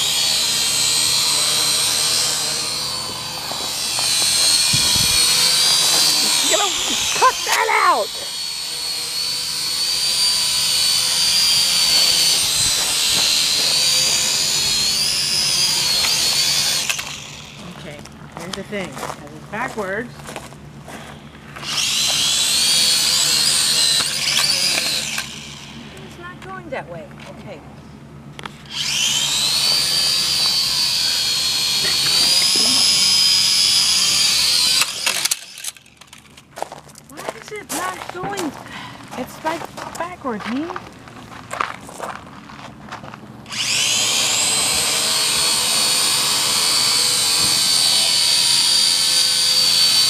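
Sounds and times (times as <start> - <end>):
drone propellers whining: 0.0 - 18.9, 20.9 - 27.0, 28.2 - 36.5, 43.4 - 50.0.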